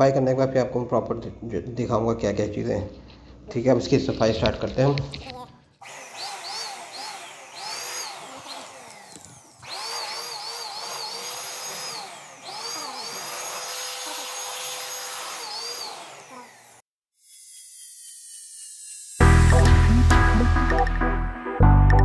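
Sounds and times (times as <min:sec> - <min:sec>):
electric blower motor whine: 0:05.8 - 0:20.4.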